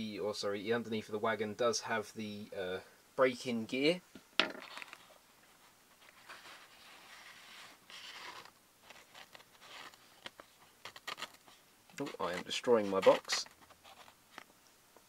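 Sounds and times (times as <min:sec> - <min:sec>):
soft rustling and scraping: 0:04.5 - 0:14.6.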